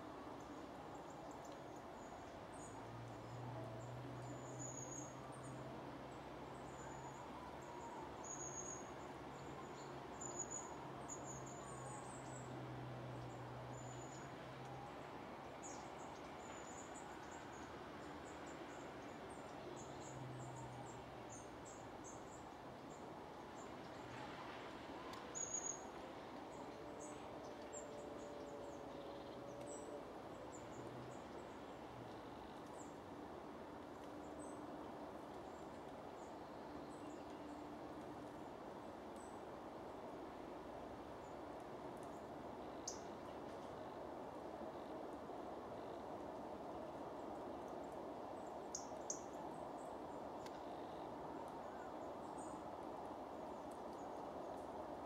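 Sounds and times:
steady outdoor hiss: 0.0s - 55.0s.

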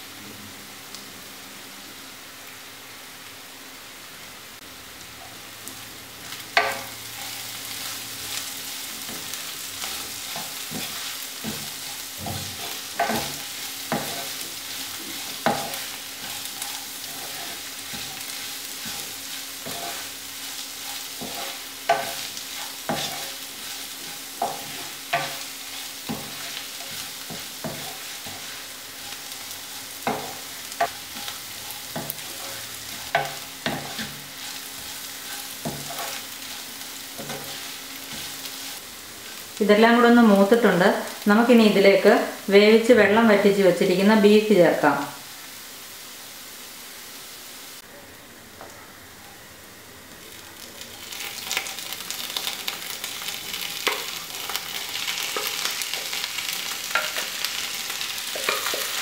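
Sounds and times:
food sizzling in oil: 0.7s - 47.9s, 48.9s - 59.0s
wooden spatula scraping a pan: 6.6s - 39.5s, 51.2s - 59.0s.

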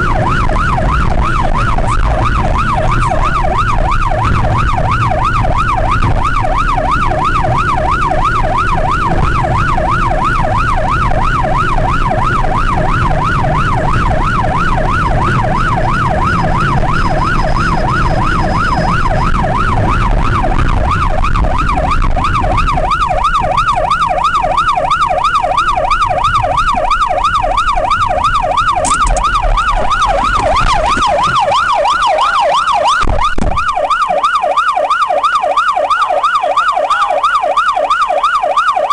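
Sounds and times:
engine and road noise rumble: 0.0s - 38.9s
police siren yelping: 0.0s - 38.9s.

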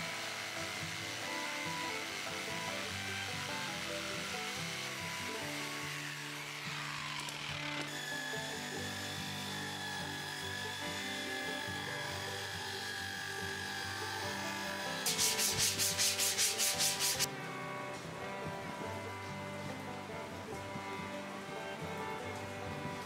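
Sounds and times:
disc sander whining: 0.0s - 23.0s
hand sanding plywood edge: 11.0s - 17.3s.

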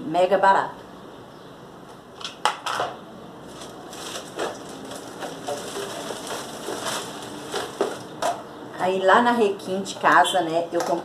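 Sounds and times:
plastic packaging rustling: 3.4s - 8.4s.

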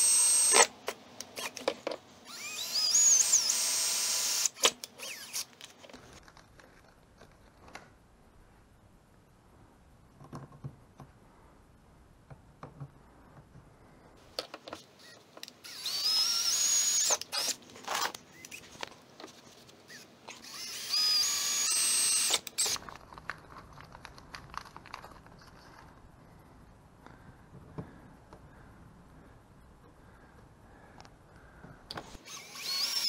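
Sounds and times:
cordless drill whining: 0.0s - 0.7s, 2.2s - 5.5s, 15.0s - 17.6s, 19.9s - 22.8s, 32.1s - 33.0s
handling clicks and rustles: 22.6s - 28.4s.

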